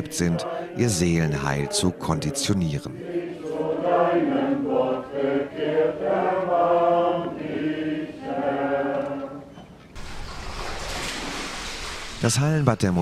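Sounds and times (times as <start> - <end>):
congregation singing slowly: 0.0 - 9.7.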